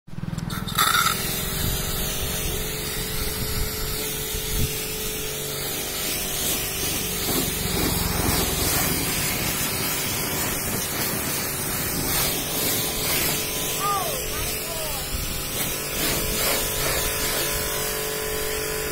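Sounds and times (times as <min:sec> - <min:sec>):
pressure washer spraying water: 0:00.4 - 0:18.9
machine hum: 0:06.6 - 0:11.8.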